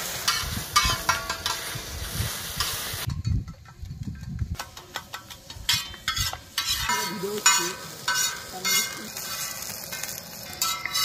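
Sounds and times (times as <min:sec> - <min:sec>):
egg sizzling: 0:00.0 - 0:03.1, 0:04.6 - 0:11.0
spatulas scraping a pan: 0:05.7 - 0:11.0.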